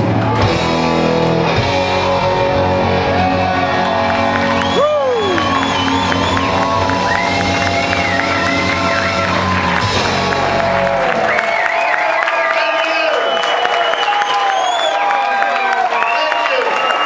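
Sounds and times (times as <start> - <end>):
live rock band playing: 0.0 - 11.7
crowd cheering and whistling: 0.0 - 17.0.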